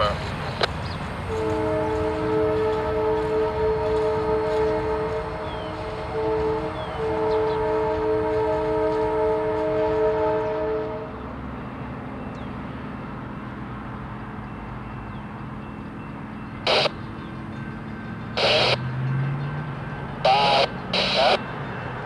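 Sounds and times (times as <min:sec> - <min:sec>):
diesel locomotive engine drone: 0:00.0 - 0:22.0.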